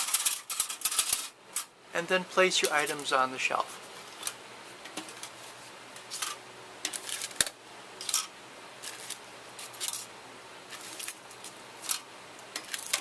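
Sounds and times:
packages scraping on metal shelves: 0:00.0 - 0:01.3.

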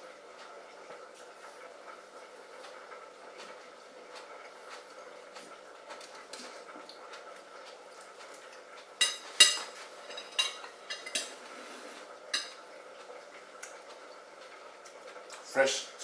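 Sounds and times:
fork clinking against ceramic bowl: 0:09.0 - 0:11.4, 0:12.3 - 0:12.6.

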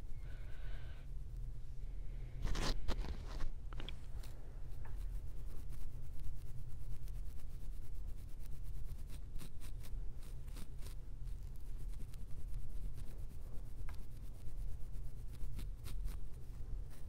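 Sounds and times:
fingers scratching scalp: 0:04.1 - 0:17.0.

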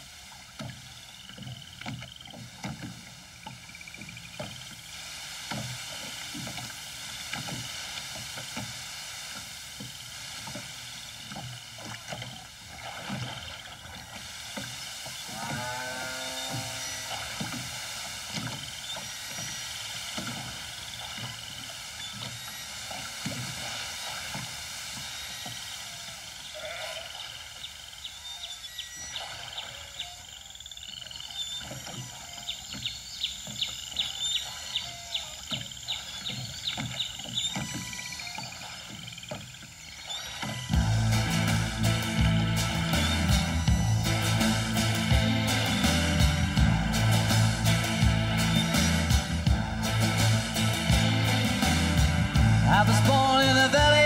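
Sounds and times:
oars knocking and creaking: 0:00.0 - 0:54.0
cow mooing: 0:15.2 - 0:17.4.

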